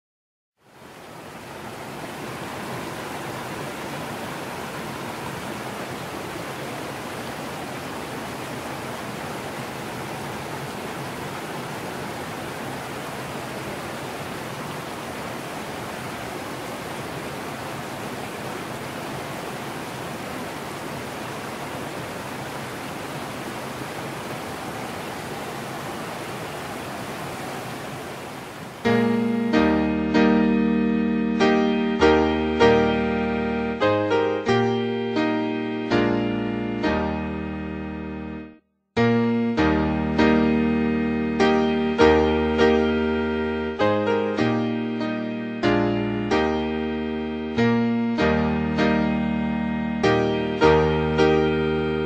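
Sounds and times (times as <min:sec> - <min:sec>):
stream rushing over rocks: 0:00.6 - 0:30.6, 0:39.6 - 0:44.1.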